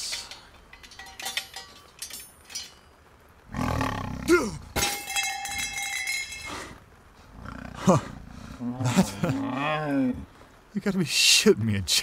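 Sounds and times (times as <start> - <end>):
jaguar snarling and roaring: 3.5 - 4.8, 6.5 - 10.3
ringing metallic sound: 4.8 - 6.5.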